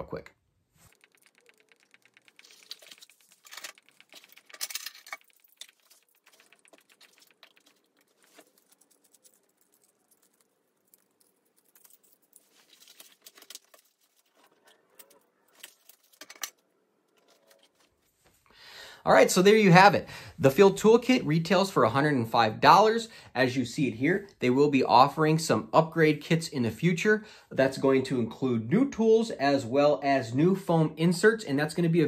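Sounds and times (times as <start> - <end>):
metal tools clinking: 0.8 - 16.6.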